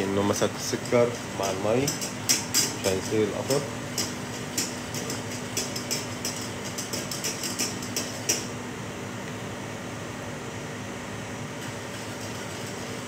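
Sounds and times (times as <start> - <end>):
fan hum: 0.0 - 13.0
whisk clinking against saucepan: 0.3 - 8.5.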